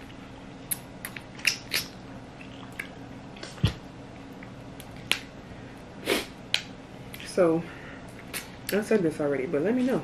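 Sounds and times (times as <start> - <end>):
wet chewing sounds: 0.6 - 5.2.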